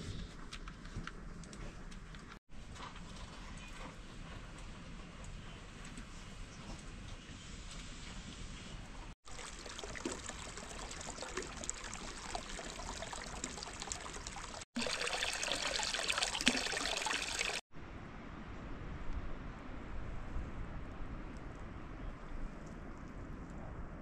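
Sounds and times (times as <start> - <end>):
water trickling and pouring: 9.2 - 17.6.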